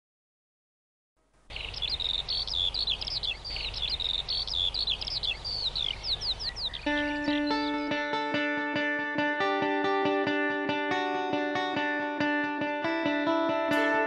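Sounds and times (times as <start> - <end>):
steady low background noise: 1.2 - 7.9
songbirds singing trills: 1.5 - 8.2.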